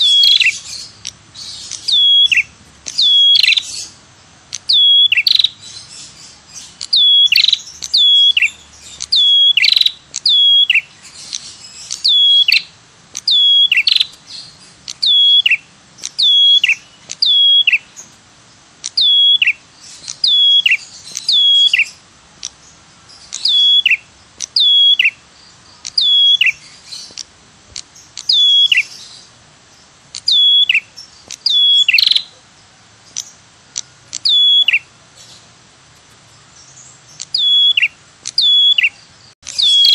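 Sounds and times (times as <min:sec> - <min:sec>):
bird whistling call: 0:00.0 - 0:04.0, 0:04.6 - 0:18.0, 0:18.9 - 0:22.0, 0:23.3 - 0:25.2, 0:25.9 - 0:27.0, 0:28.2 - 0:29.2, 0:30.2 - 0:32.3, 0:34.2 - 0:34.9, 0:37.2 - 0:39.9.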